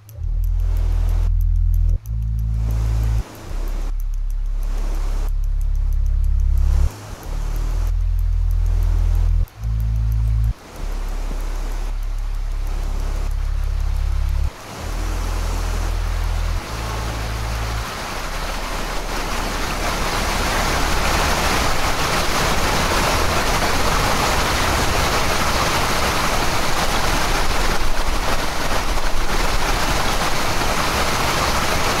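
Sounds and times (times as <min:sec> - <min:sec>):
dense rushing noise: 0:00.0 - 0:32.0.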